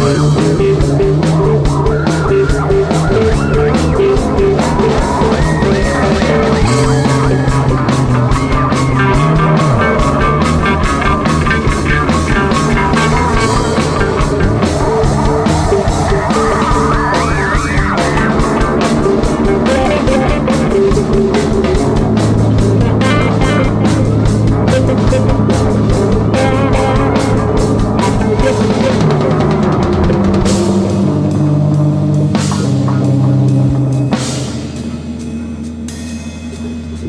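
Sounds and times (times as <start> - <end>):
bass note sliding down: 0.0 - 34.3
rock band playing: 0.0 - 37.0.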